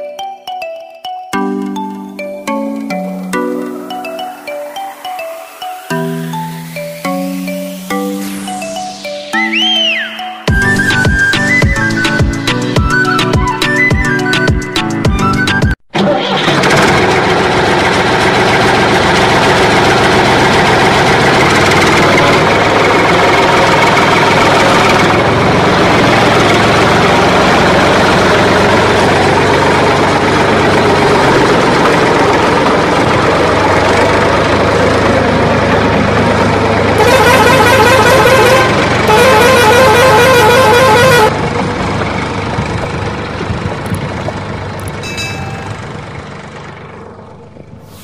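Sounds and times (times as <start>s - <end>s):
engine running: 9.9s - 48.0s
horns honking: 36.8s - 41.4s.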